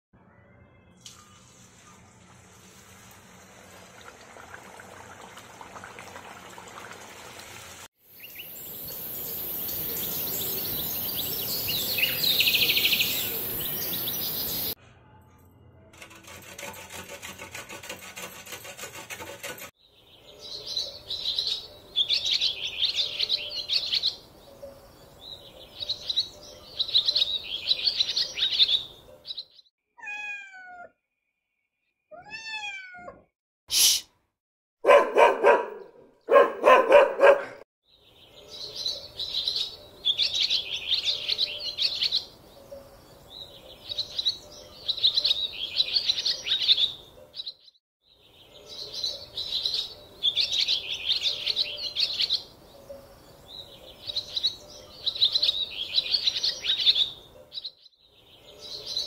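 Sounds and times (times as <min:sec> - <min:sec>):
hot oil sizzling: 0:01.1 - 0:07.9
birds chirping: 0:08.1 - 0:14.8, 0:19.6 - 0:29.7, 0:34.8 - 0:59.0.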